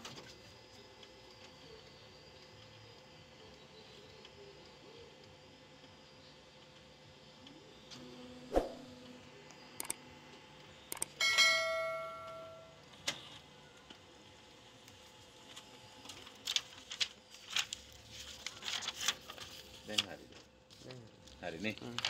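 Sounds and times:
sharp clicks: 0:09.8 - 0:10.0, 0:10.9 - 0:11.2
bell-like metallic ring: 0:11.2 - 0:12.8
paper chart rustling: 0:16.1 - 0:22.0.

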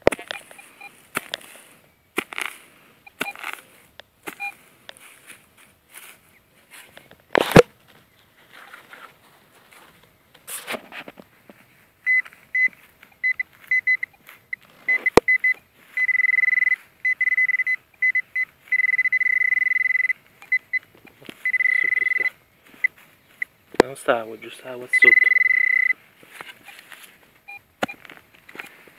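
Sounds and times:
metal detector beeping tone: 0:00.0 - 0:01.0, 0:03.0 - 0:03.7, 0:04.3 - 0:05.1, 0:12.0 - 0:23.6, 0:24.6 - 0:26.0, 0:26.6 - 0:28.8.

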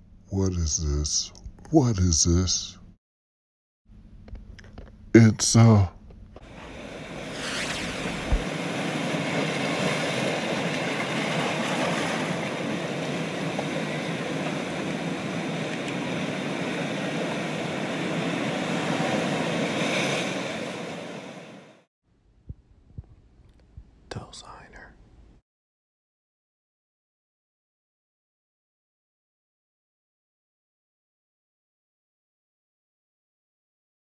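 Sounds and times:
steady rushing noise: 0:06.5 - 0:11.6, 0:12.2 - 0:21.8
short low thump: 0:07.9 - 0:08.5.

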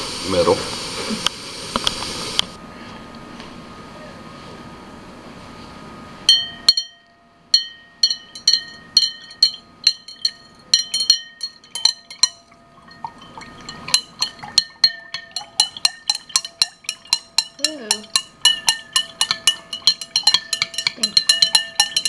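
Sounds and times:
glass beaker clinking: 0:06.3 - 0:22.0.

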